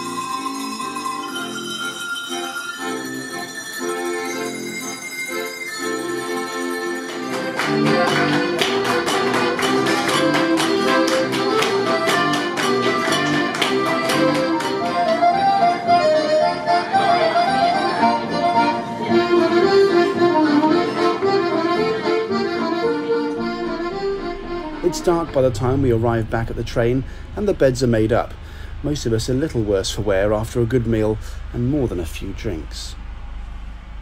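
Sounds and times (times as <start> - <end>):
accordion folk music: 0.0 - 26.3.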